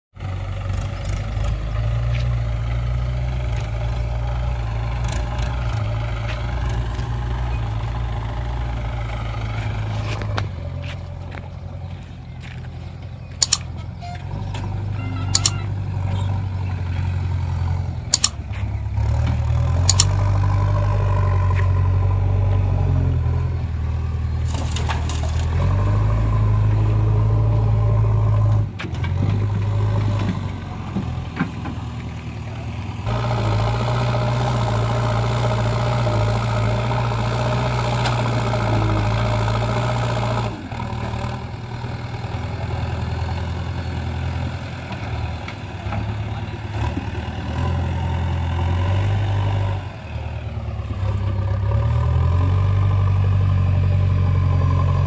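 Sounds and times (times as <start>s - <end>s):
diesel engines running: 0.1s - 55.0s.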